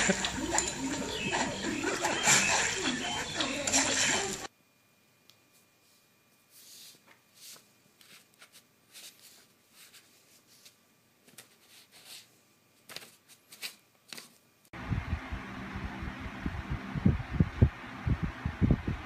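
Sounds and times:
paper rustling and crinkling: 0:06.5 - 0:14.4.

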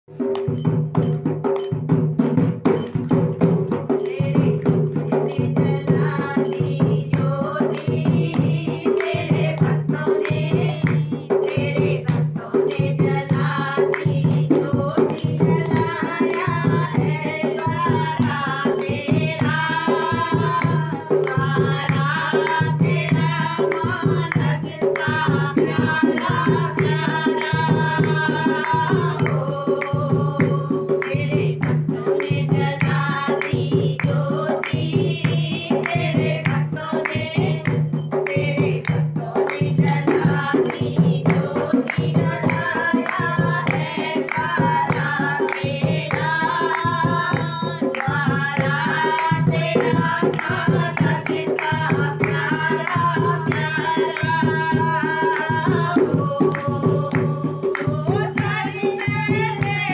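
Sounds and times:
barrel drum beating rhythm: 0:00.1 - 0:59.9
woman singing devotional song: 0:00.2 - 0:59.9.

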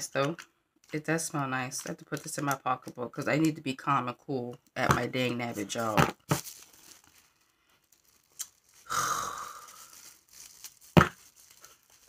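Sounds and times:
packaging tearing: 0:06.3 - 0:12.0.

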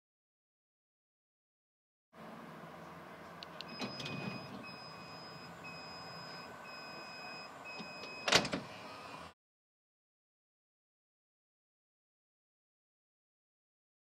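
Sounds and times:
high warning beeps: 0:03.6 - 0:08.4
electric sliding door closing: 0:03.6 - 0:09.4
door shutting thud: 0:07.8 - 0:08.7.

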